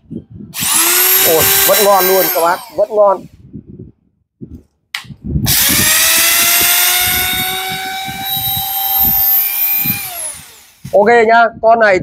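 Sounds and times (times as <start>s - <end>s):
electric drill whining: 0.6s - 3.1s, 5.5s - 11.0s.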